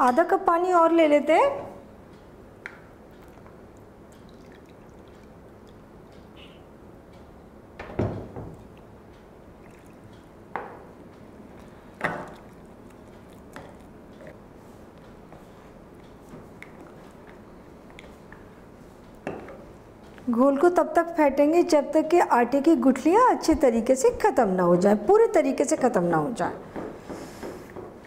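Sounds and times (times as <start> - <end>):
water pouring into a bowl: 4.2 - 5.3, 9.6 - 10.1.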